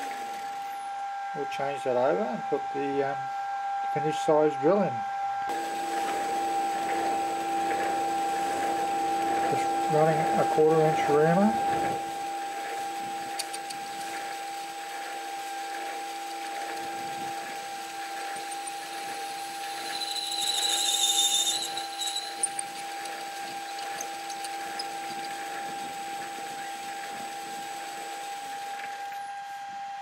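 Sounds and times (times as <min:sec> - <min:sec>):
metal lathe whining: 0:05.5 - 0:30.0
high-pitched squeal: 0:16.1 - 0:28.2.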